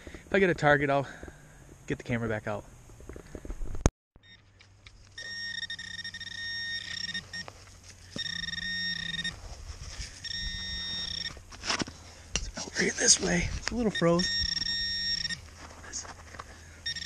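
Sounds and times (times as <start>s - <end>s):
metal detector beep: 4.2s - 9.4s, 10.0s - 11.4s, 12.8s - 15.5s, 16.7s - 17.0s.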